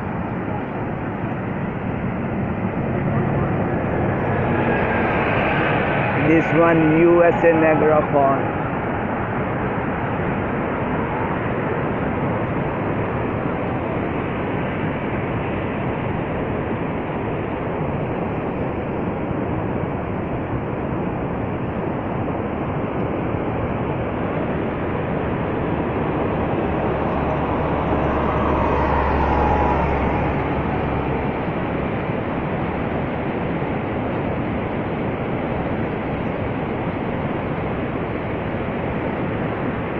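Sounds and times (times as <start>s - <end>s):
waterfall roar: 0.0s - 39.9s.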